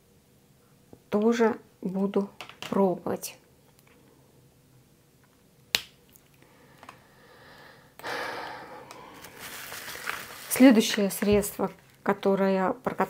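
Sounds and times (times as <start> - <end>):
packaging rustling: 9.1 - 12.1.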